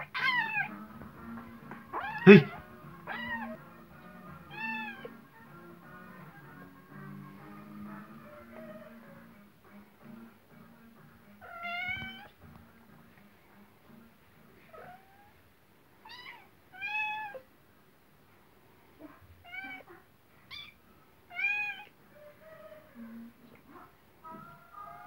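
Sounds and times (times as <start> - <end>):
cat meowing: 0.0 - 0.8, 1.9 - 3.6, 4.5 - 5.2, 11.4 - 12.3, 16.0 - 17.4, 19.4 - 19.9, 20.5 - 21.9.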